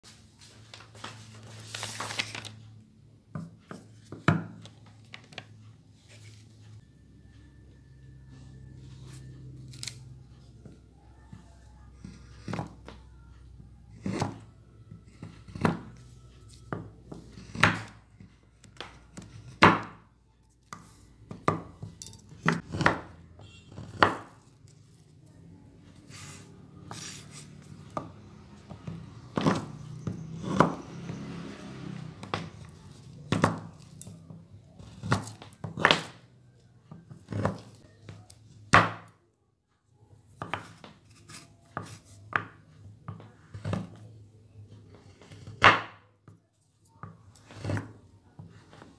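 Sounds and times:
knife chopping on wooden board: 22.4 - 24.4.

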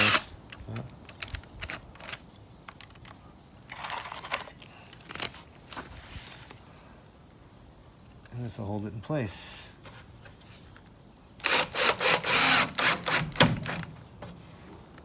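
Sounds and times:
rustling scrape: 5.3 - 6.6.

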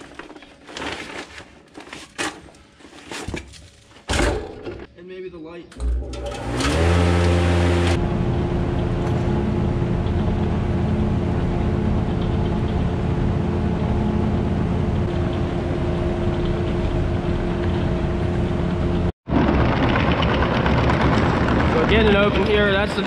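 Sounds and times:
electric fan motor hum: 5.8 - 23.0.

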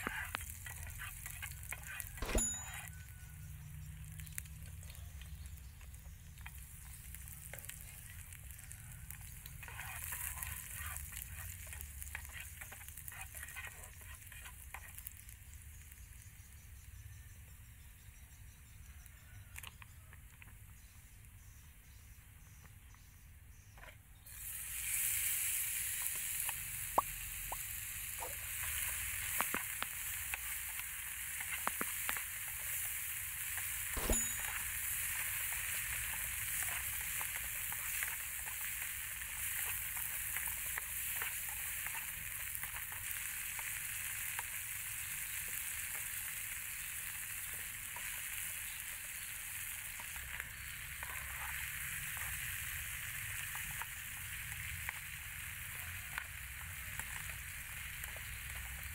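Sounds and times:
meat sizzling in hot oil: 0.0 - 22.7, 23.5 - 58.9
metal spatula scraping pan: 9.6 - 14.9.

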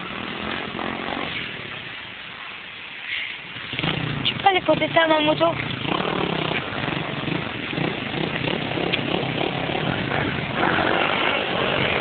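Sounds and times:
dirt bike engine running: 3.5 - 12.0.

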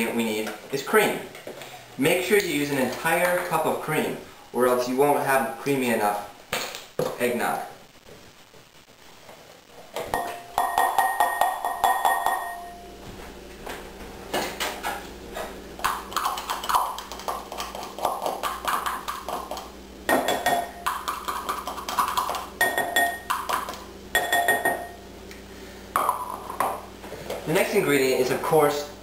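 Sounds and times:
glass bowl ringing: 10.2 - 12.8, 22.6 - 23.3, 24.1 - 25.0.

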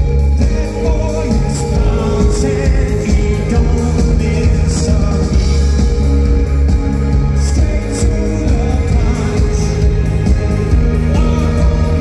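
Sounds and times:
electric guitar: 0.0 - 12.0
heavy bass: 0.0 - 12.0
man singing: 0.0 - 12.0.

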